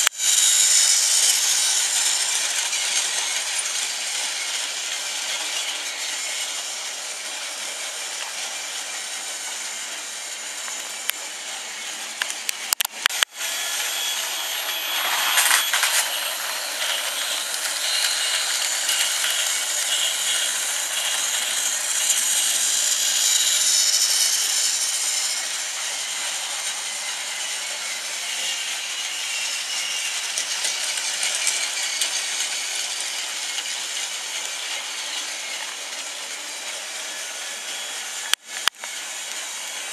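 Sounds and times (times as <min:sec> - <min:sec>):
toy train motors whirring: 0:00.0 - 0:39.9
plastic wheels rattling on track: 0:14.8 - 0:25.4, 0:29.4 - 0:38.0.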